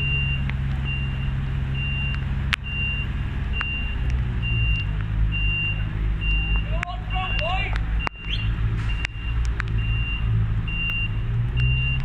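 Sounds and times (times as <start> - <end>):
reversing alarm beeps: 0.0 - 12.0.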